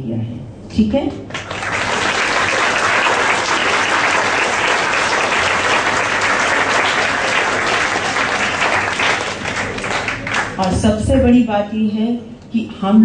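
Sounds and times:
audience applauding: 1.3s - 10.9s.

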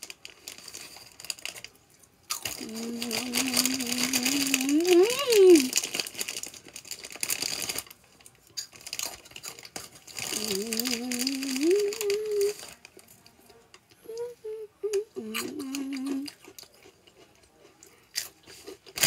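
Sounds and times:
snack wrapper crinkling: 0.0s - 13.6s, 14.9s - 19.0s
boy humming mmm: 2.6s - 5.7s, 10.2s - 12.6s, 14.0s - 16.4s.

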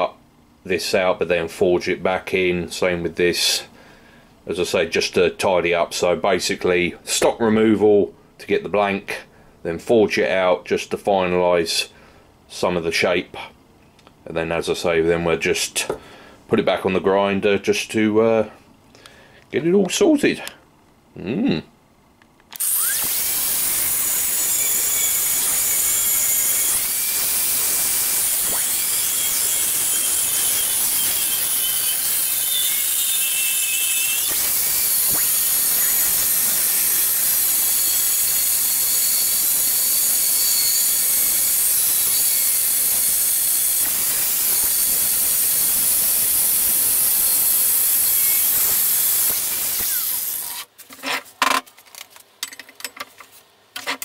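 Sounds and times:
angle grinder cutting steel: 22.6s - 50.7s.

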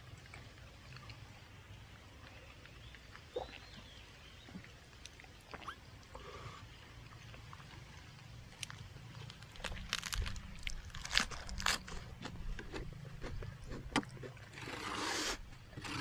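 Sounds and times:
faint low rumble: 7.0s - 14.4s.

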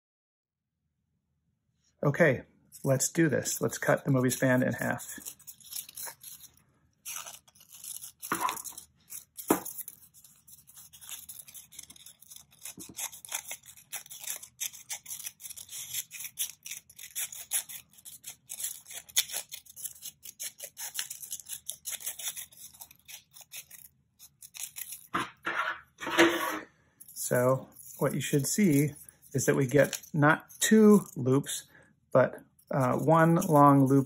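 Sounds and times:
scissors snipping paper: 3.6s - 25.4s, 27.7s - 31.2s, 32.6s - 34.0s.

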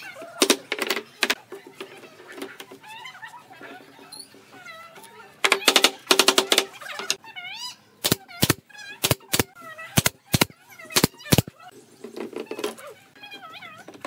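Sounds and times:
nail gun firing into boards: 5.5s - 6.7s, 8.0s - 11.5s.

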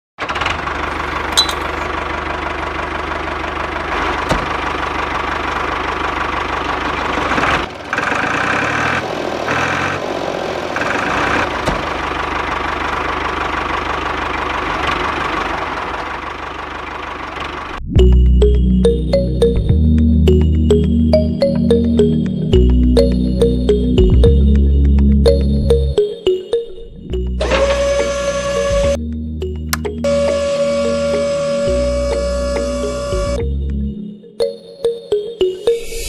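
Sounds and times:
toy tractor motor running: 10.7s - 11.6s
higher tone: 17.9s - 36.0s.

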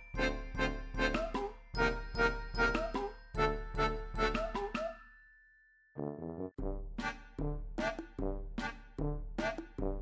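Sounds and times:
chiming bell-like music: 0.0s - 6.1s.

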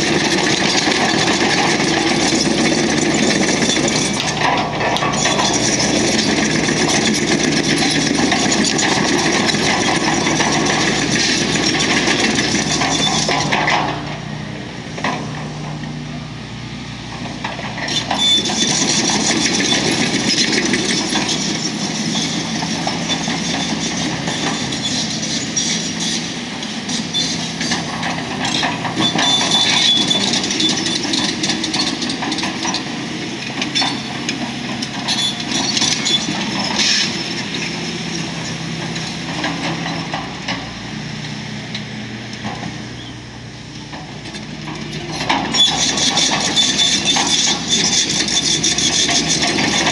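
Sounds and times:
excavator diesel engine: 0.0s - 49.9s.

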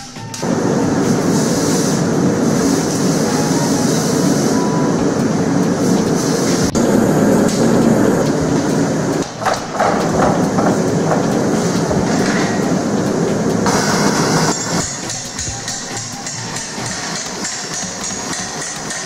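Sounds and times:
gas burner roaring: 0.0s - 19.0s
metal clanks: 7.4s - 13.7s.

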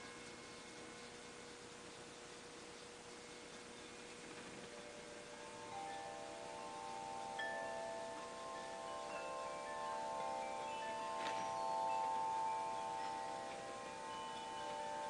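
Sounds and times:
chimes ringing: 0.0s - 0.6s, 4.7s - 15.0s.

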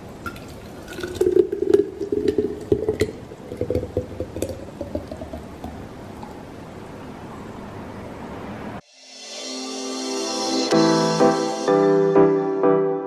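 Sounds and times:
smoothie glugging into a glass jar: 0.2s - 6.5s.

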